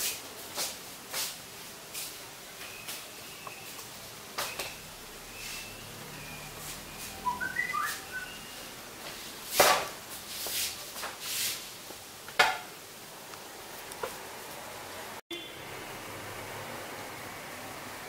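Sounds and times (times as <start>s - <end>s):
rising whistle-like chirps: 5.3s - 8.6s.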